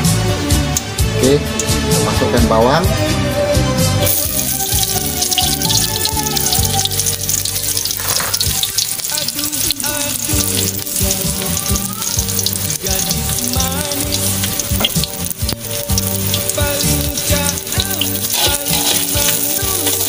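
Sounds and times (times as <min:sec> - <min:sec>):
shallots sizzling in hot oil: 0:04.0 - 0:20.0.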